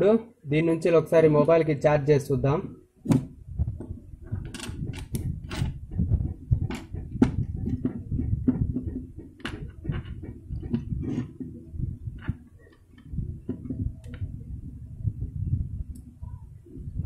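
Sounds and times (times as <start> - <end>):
cable handling clicks and knocks: 3.1 - 5.8, 6.7 - 11.6
low rumble: 3.3 - 17.0.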